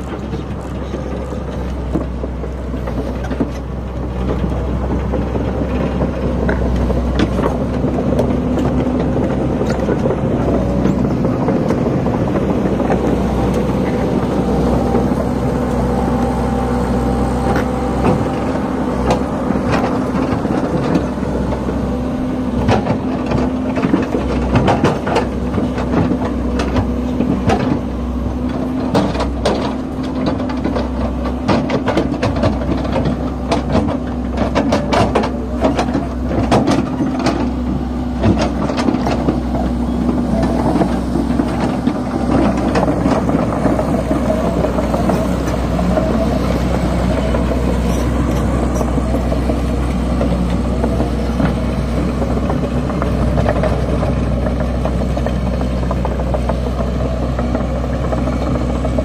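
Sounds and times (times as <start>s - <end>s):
diesel engine running steadily: 0.0s - 59.0s
excavator bucket clanking: 0.0s - 59.0s.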